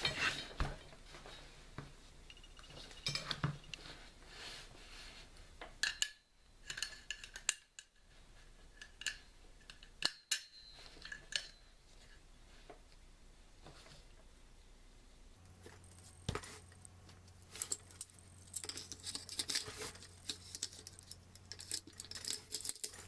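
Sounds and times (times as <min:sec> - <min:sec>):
metal gun parts clicking: 0:17.5 - 0:23.0.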